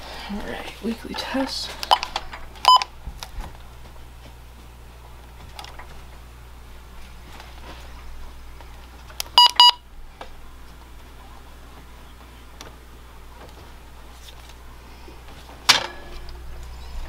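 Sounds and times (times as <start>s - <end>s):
low steady hum: 0.0s - 17.0s
short electronic beeps: 9.4s - 9.8s.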